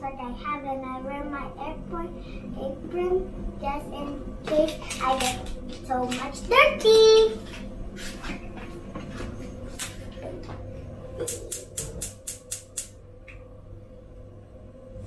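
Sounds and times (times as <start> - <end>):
steady low hum: 0.0 - 15.0
sharp clicks: 11.2 - 13.4.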